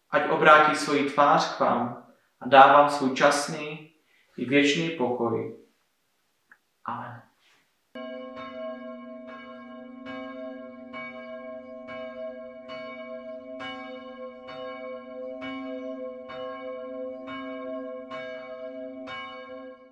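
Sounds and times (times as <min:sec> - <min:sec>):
church bell tolling: 0:08.0 - 0:19.9.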